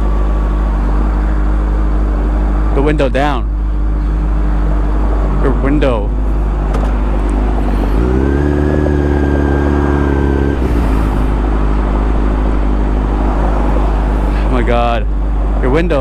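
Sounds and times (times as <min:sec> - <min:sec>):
motorcycle engine revving: 0:04.3 - 0:15.8
wind rumble: 0:06.2 - 0:15.6.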